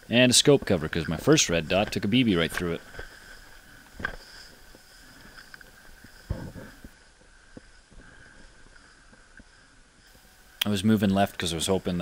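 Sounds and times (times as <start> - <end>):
rustling through dry brush: 0.4 - 10.5.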